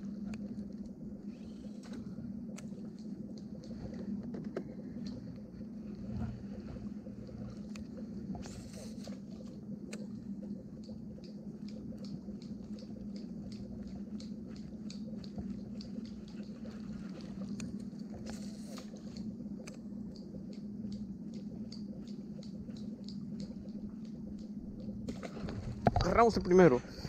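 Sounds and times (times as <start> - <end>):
fishing line whirring off spool: 0.0 - 2.9
fishing reel ticking: 0.0 - 4.1, 4.8 - 25.3
low hum: 0.0 - 27.0.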